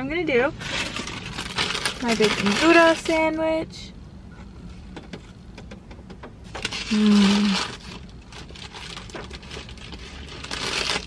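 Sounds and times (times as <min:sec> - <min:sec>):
paper bag crinkling: 0:00.6 - 0:03.2, 0:06.6 - 0:11.0
person humming mmm: 0:06.9 - 0:07.7.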